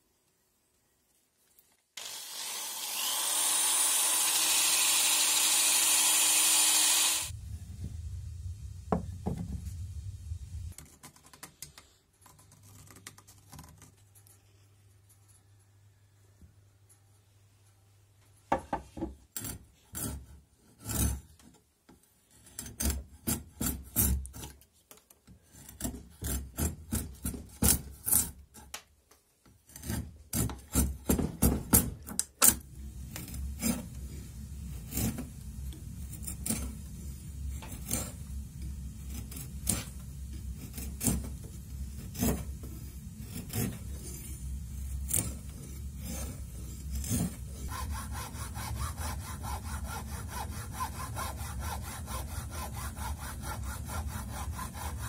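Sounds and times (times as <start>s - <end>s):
hacksaw cutting wood: 2.0s - 7.3s, 19.4s - 21.4s, 22.3s - 24.5s, 25.5s - 28.4s, 29.7s - 32.0s, 39.1s - 41.4s, 42.0s - 42.6s, 43.2s - 44.0s, 45.0s - 55.0s
file scraping wood: 19.0s - 21.6s, 22.2s - 28.8s, 29.5s - 32.2s, 32.8s - 55.0s.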